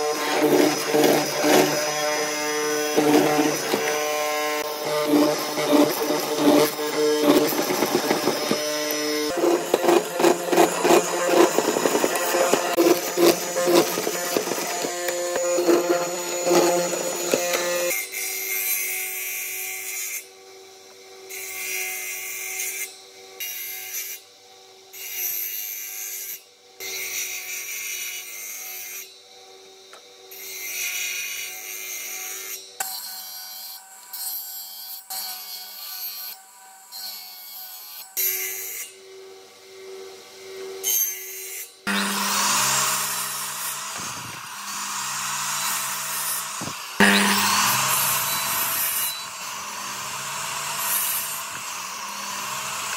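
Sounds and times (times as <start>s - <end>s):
drill press mortising wood: 0.0s - 17.9s, 41.9s - 52.9s
circular saw blade spinning: 0.0s - 18.0s, 41.8s - 52.9s
miter saw cutting board: 0.0s - 24.2s, 29.8s - 52.9s.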